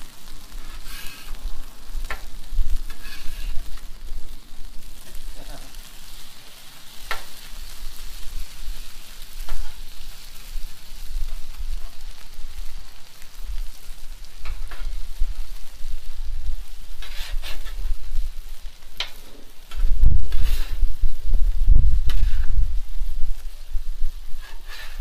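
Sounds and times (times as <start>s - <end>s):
meat and onions sizzling on griddle: 0.0s - 25.0s
metal spatulas scraping steel: 2.9s - 3.6s, 17.0s - 17.8s, 24.4s - 25.0s.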